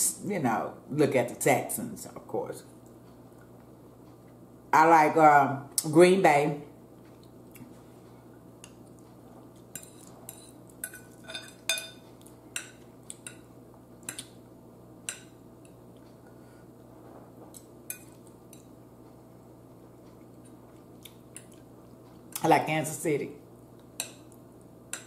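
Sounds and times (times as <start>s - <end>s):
fork clinking on ceramic bowl: 9.7s - 12.0s.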